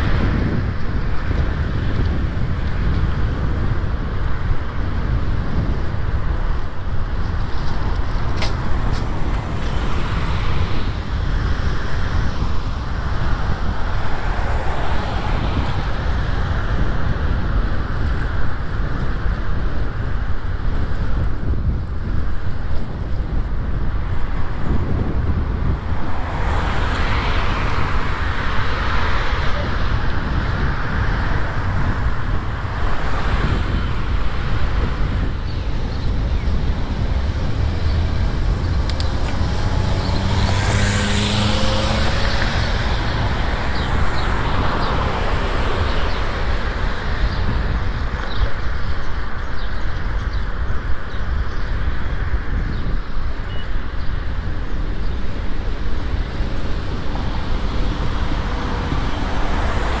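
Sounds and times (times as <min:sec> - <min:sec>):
wind rumble on microphone: 0:00.0 - 1:00.0
cars driving past: 0:08.8 - 0:16.9, 0:25.5 - 0:48.2, 0:55.5 - 1:00.0
vehicle engine passing loudly: 0:24.5 - 0:48.1.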